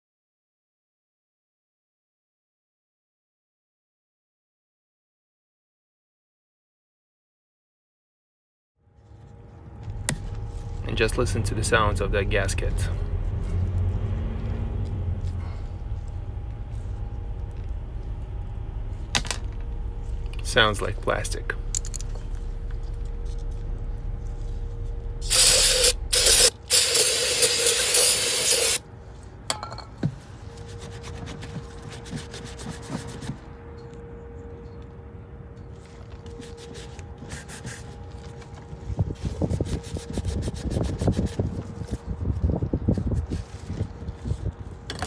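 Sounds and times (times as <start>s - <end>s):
aerosol spray hissing: 25.3s - 28.8s.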